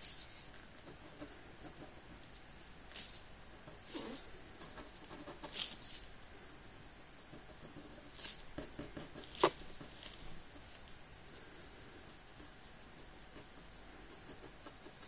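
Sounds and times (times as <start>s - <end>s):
pen scratching on paper: 3.7s - 5.8s, 7.3s - 10.7s, 11.4s - 15.0s.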